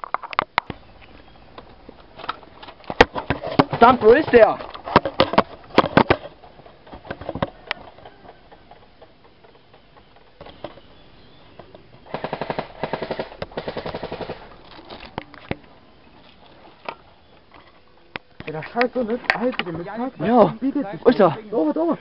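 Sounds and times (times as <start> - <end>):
airsoft gun shots: 12.1 - 14.5.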